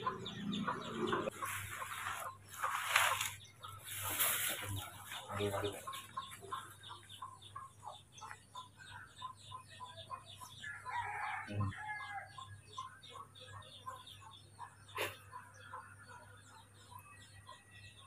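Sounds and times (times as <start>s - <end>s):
chickens clucking: 0.0s - 18.0s
rooster crowing: 10.7s - 12.3s.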